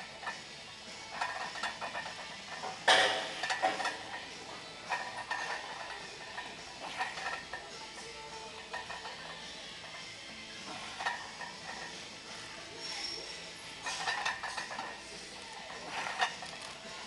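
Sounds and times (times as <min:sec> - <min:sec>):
metal weights clanking: 0:01.1 - 0:08.0.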